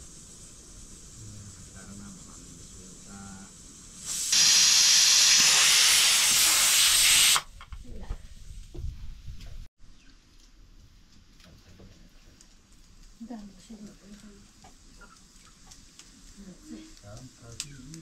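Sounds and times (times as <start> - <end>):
steam hissing loudly: 0.0 - 7.5.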